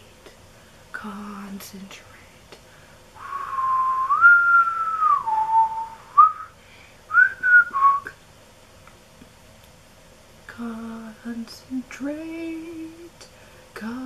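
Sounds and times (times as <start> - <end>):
woman whistling a tune: 3.2 - 8.2.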